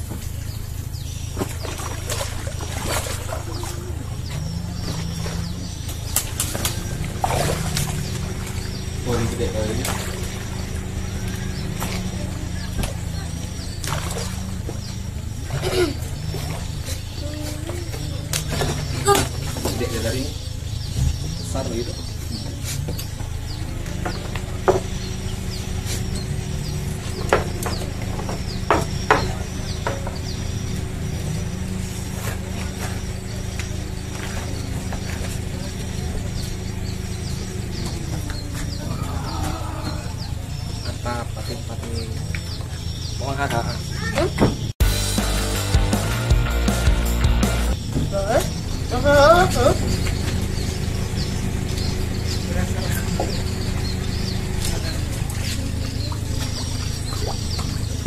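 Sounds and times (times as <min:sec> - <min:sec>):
steady low hum: 0:00.0 - 0:37.9
small birds chirping: 0:00.0 - 0:58.0
fish splashing in water: 0:01.2 - 0:21.2, 0:49.7 - 0:58.0.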